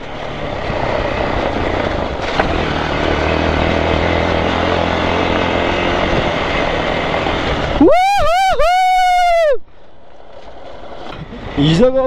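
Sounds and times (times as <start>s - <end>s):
motorcycle engine running: 0.0s - 7.8s
tyres on gravel: 0.0s - 7.8s, 9.7s - 12.0s
wind: 0.0s - 12.0s.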